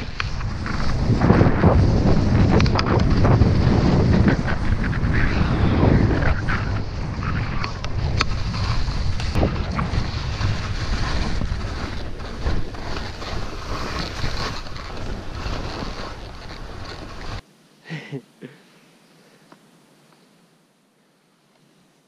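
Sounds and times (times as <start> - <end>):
wind rushing over microphone: 0.0 - 17.4
skis hissing on snow: 8.3 - 18.2.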